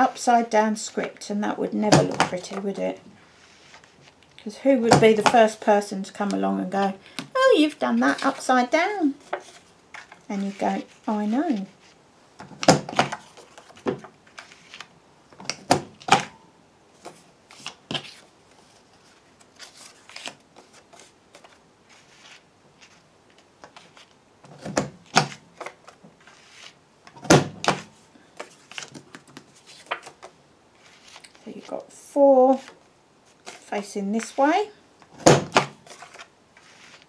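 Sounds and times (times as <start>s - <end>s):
paper rustling and sliding: 2.4s - 4.3s, 13.0s - 14.9s, 17.0s - 24.2s, 25.1s - 26.8s, 27.4s - 31.7s, 32.5s - 34.4s, 35.6s - 37.0s.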